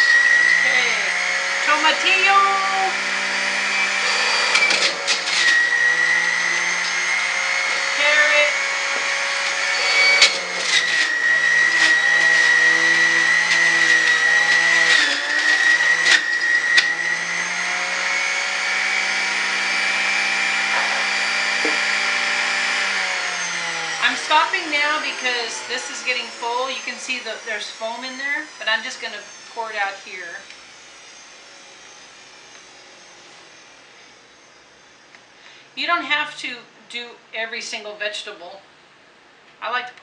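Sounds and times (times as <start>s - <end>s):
electric juicer whining: 0.0s - 35.8s
sharp knocks: 20.7s - 21.8s.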